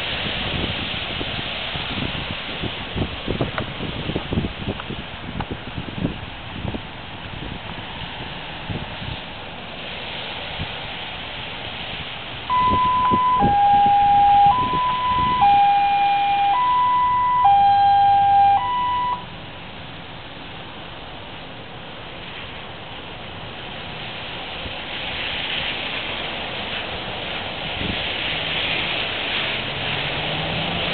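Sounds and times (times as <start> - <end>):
tyres hissing on wet road: 0.0 - 30.9
two-tone emergency siren: 12.5 - 19.3.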